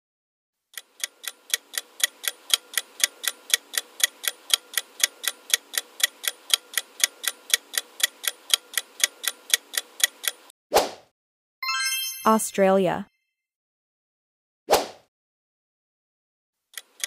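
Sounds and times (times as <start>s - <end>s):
clock ticking: 0.7s - 10.5s, 16.7s - 17.0s.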